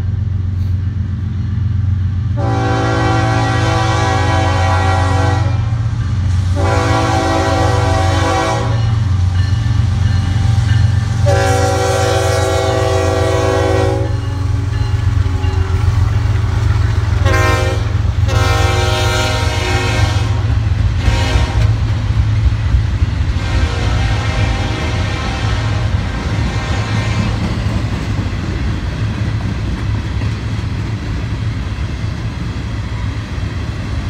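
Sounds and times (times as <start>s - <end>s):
train rumbling past: 0.0s - 34.0s
locomotive air horn blasts: 2.4s - 5.8s, 6.5s - 9.2s, 11.2s - 14.5s, 17.2s - 21.8s, 23.3s - 27.2s.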